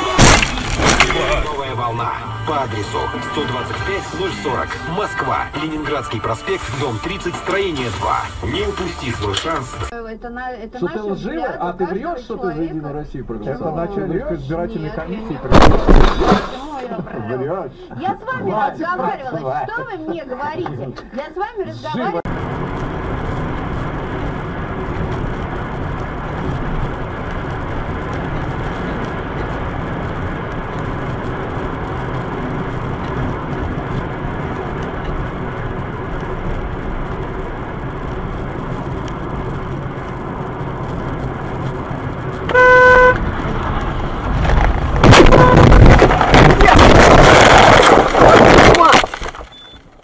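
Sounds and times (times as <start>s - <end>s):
car road and engine noise: 0.0s - 50.0s
car horn blast: 42.5s - 43.2s, 45.0s - 45.9s
loud burst of noise: 44.6s - 49.4s.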